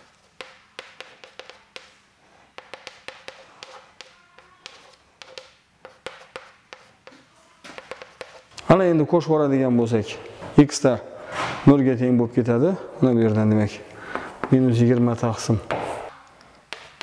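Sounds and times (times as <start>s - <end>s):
chalk tapping and scratching on chalkboard: 0.0s - 8.5s, 16.7s - 17.0s.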